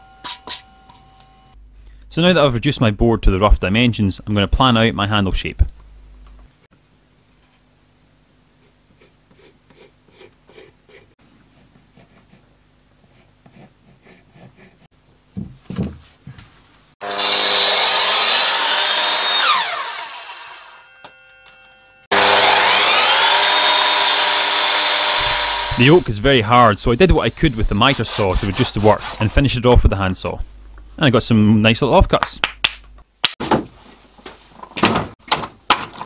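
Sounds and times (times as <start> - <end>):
pencil scratching on wood: 8.6 - 14.9, 27.3 - 29.4
mitre saw cutting wood: 17.0 - 26.1, 27.0 - 29.4.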